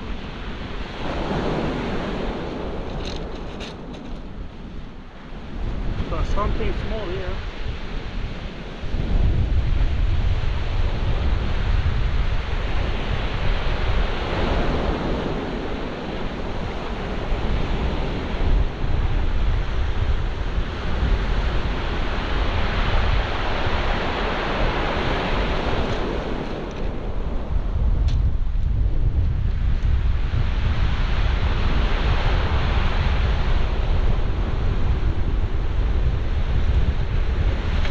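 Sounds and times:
surf breaking on shingle beach: 0.0 - 4.4, 5.2 - 28.1
wind buffeting microphone: 0.0 - 37.9.

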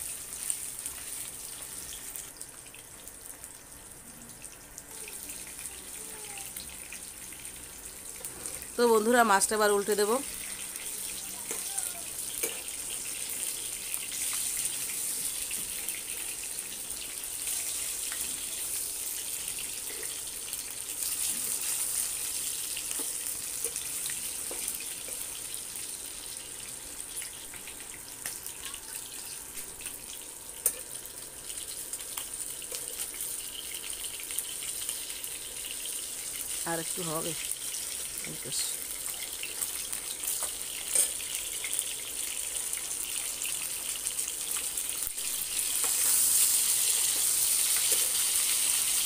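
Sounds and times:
fish sizzling in hot oil: 0.0 - 49.0.

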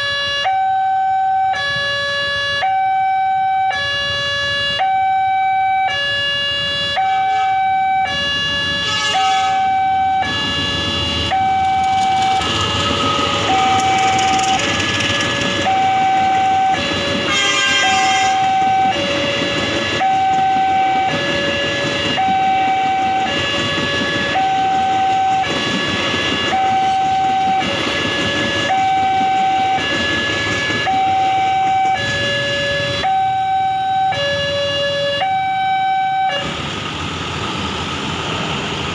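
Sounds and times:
two-tone electronic crossing alarm: 0.0 - 36.6
train wheels rumbling on rails: 7.3 - 35.6, 36.2 - 38.9.

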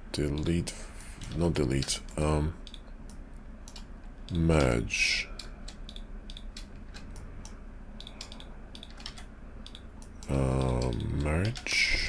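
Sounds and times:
low steady hum: 0.0 - 12.0
keyboard and mouse clicks: 1.2 - 4.8, 5.4 - 12.0
man's voice: 10.3 - 12.0.

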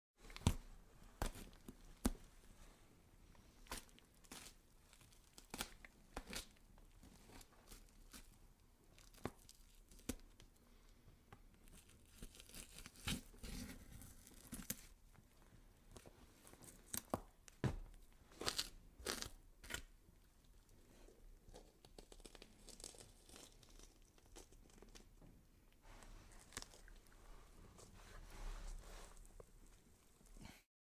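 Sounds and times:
wet tearing and crunching flesh: 3.6 - 10.3, 11.6 - 14.9, 18.3 - 20.7, 21.5 - 25.1, 26.4 - 27.1.

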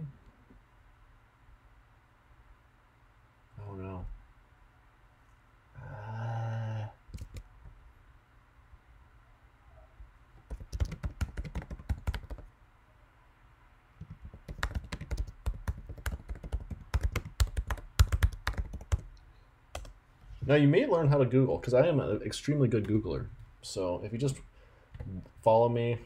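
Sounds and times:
typing on computer keyboard: 7.1 - 7.5, 10.5 - 12.5, 14.0 - 20.0.

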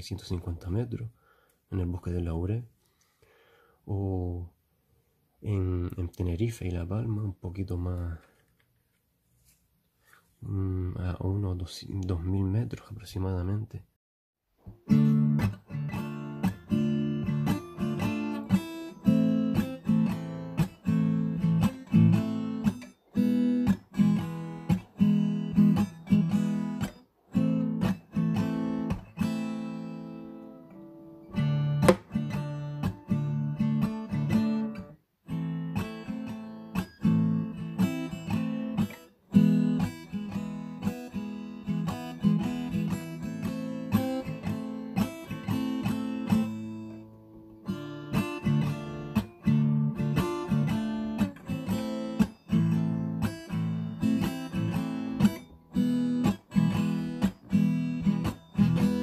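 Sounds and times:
acoustic guitar music: 14.6 - 59.0.

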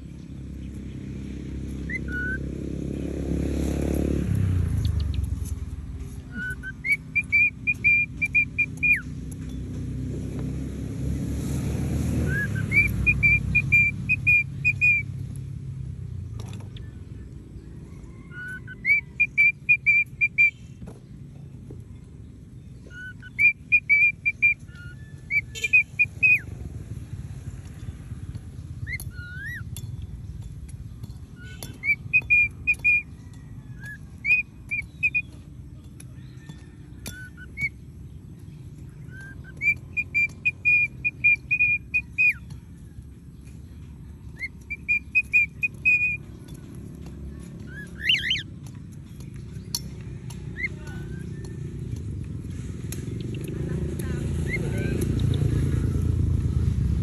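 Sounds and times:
cockatiel whistling: 1.8 - 2.4, 6.2 - 9.1, 12.2 - 15.1, 18.3 - 20.6, 22.9 - 26.5, 28.8 - 29.7, 31.4 - 33.1, 33.7 - 35.3, 36.4 - 37.8, 39.1 - 42.5, 44.4 - 46.2, 47.7 - 48.5.

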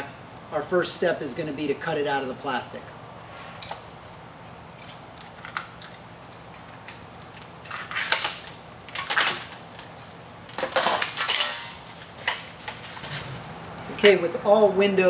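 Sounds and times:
plastic crinkling: 5.2 - 13.8.

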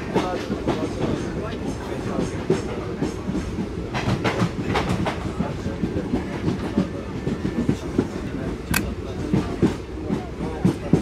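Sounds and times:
train low rumble: 0.0 - 11.0
train wheels clattering over track: 0.0 - 11.0
sharp clicks: 8.7 - 9.0.

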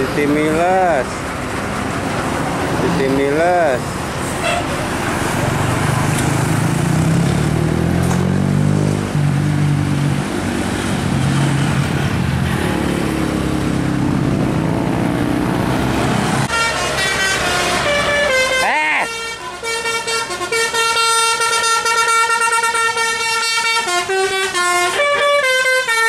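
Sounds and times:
diesel bus engines passing: 0.0 - 26.0
multi-tone bus horn melody: 4.4 - 4.9, 16.4 - 26.0.

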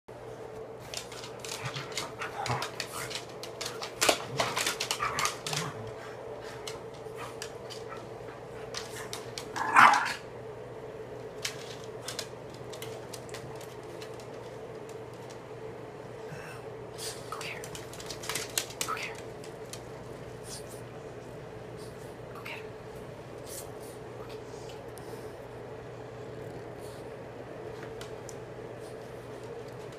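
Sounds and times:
steady hum: 0.1 - 29.9
dog claws clicking and knocking: 0.9 - 6.0, 6.6 - 9.7, 11.4 - 15.4, 17.5 - 20.0.

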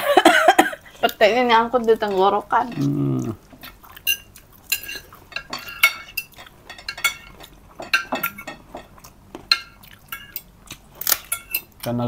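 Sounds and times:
spoon clinking on ceramic plates: 4.0 - 10.5, 11.2 - 11.8.

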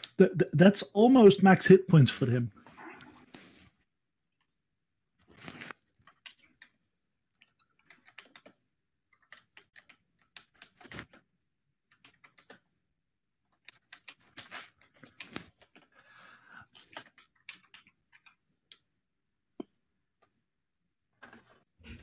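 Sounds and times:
keyboard typing: 6.0 - 11.2, 13.6 - 15.9, 16.7 - 18.9.

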